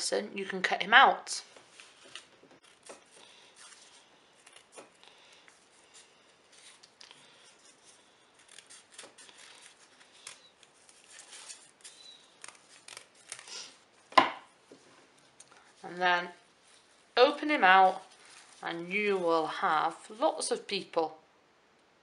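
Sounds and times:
scissors cutting paper: 6.5s - 13.8s.

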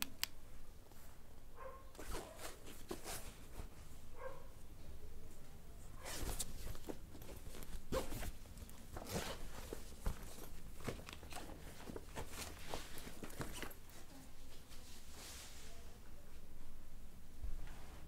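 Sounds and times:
cloth rustling in fabric bag: 5.9s - 15.8s.

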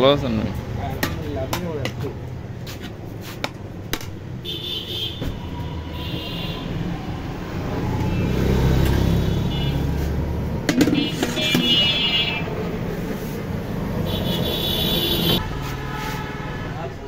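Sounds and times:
vehicle engine rumble: 5.2s - 16.0s.

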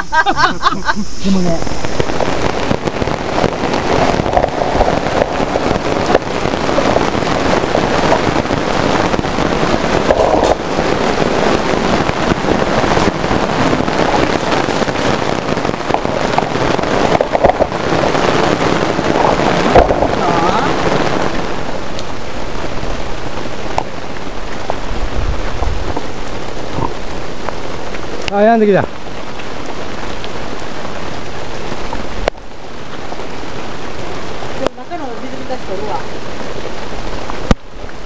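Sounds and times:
heavy rain pounding on tent canopy: 0.0s - 38.0s.

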